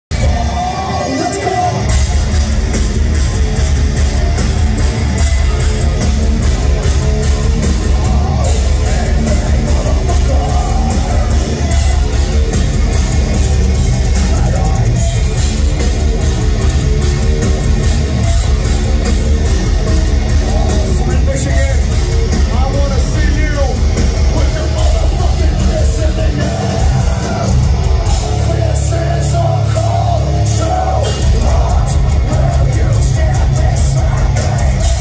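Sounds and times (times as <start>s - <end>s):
person singing: 0.1s - 2.1s, 7.6s - 15.2s, 22.5s - 35.0s
distorted electric guitars: 0.1s - 35.0s
fast drumbeat: 0.1s - 35.0s.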